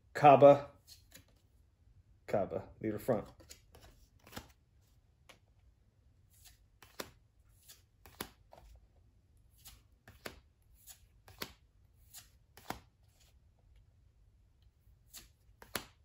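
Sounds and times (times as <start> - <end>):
trading cards snapping: 3.4 - 4.6, 6.4 - 8.7, 9.6 - 12.9, 15.1 - 16.0.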